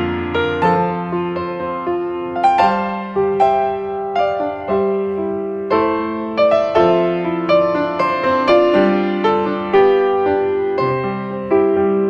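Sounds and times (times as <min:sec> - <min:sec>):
slow piano melody: 0:00.0 - 0:12.0.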